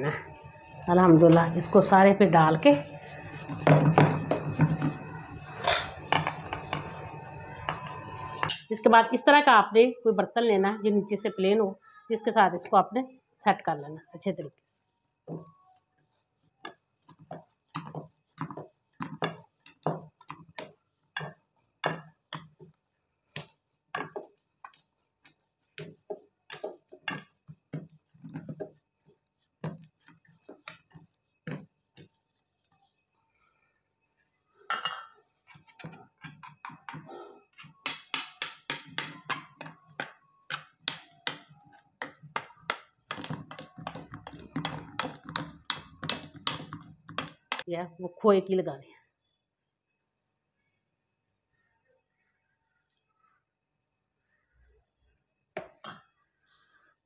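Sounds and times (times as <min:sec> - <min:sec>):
glass bowl tapping in metal pan: 0:37.8 - 0:47.6.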